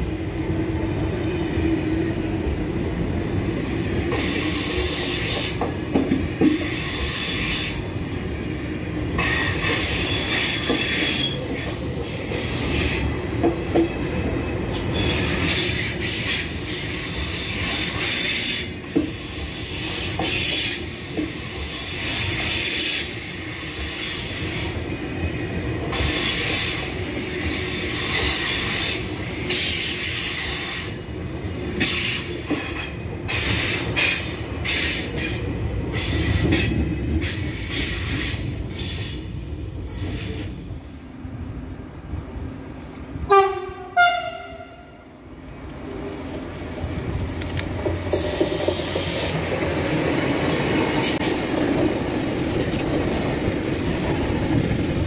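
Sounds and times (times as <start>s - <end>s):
train wheels rumbling and rattling: 0.0s - 55.0s
train horn blasts: 43.3s - 45.1s.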